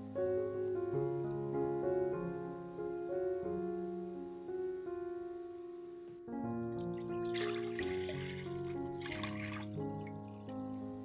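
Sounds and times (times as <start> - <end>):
gentle piano music: 0.0 - 11.0.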